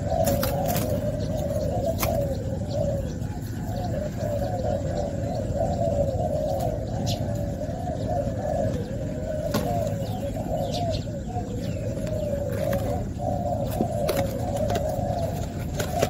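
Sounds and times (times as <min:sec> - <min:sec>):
doves cooing: 0:00.0 - 0:16.0.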